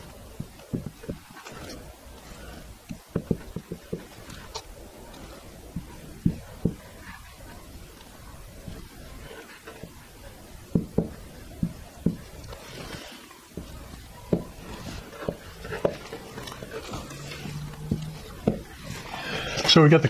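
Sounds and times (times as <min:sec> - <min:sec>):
marker tapping on board: 0:02.9 - 0:04.1, 0:10.7 - 0:12.2, 0:17.8 - 0:18.7.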